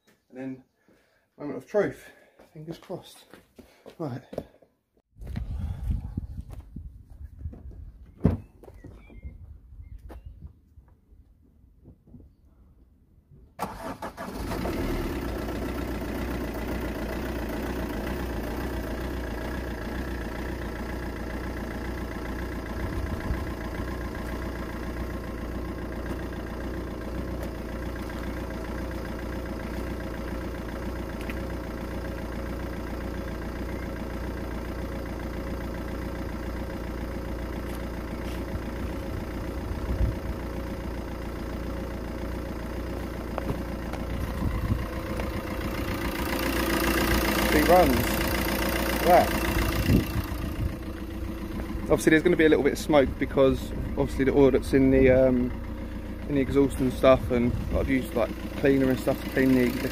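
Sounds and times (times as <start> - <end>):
diesel engine starting and idling: 13.6 - 59.9.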